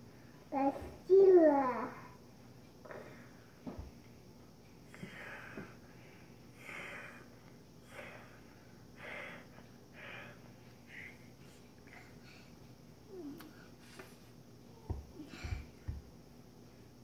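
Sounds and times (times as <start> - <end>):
child breathing noisily: 4.9 - 12.6, 15.2 - 15.9.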